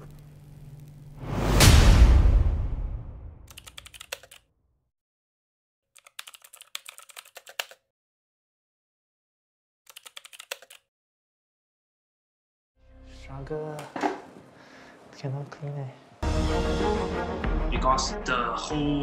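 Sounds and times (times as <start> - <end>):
deep boom: 1.2 - 3.4
rapid keyboard key clicks: 3.5 - 4.4, 6.0 - 7.8, 9.9 - 10.9.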